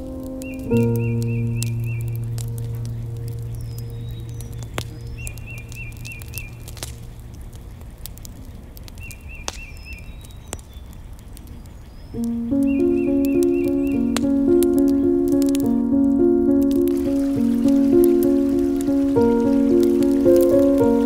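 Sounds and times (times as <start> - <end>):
background music: 0.0 - 4.8, 12.2 - 21.0
rain pattering: 0.0 - 21.0
sharp drips: 0.0 - 21.0
bird chirping in trills: 0.1 - 7.4, 11.7 - 21.0.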